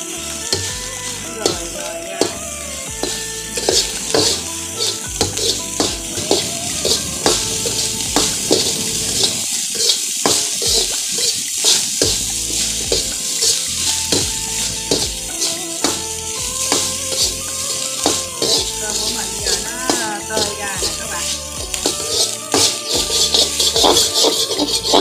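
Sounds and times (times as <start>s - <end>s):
frying sizzle: 0.0s - 25.0s
metal ladle scraping a wok: 0.0s - 25.0s.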